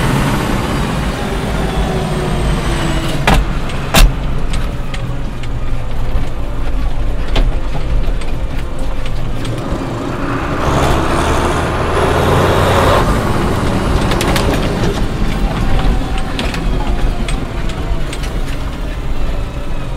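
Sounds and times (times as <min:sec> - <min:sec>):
tractor diesel engine running: 0:00.0 - 0:19.9
rattles and clicks in cab: 0:03.0 - 0:09.9, 0:13.0 - 0:19.9.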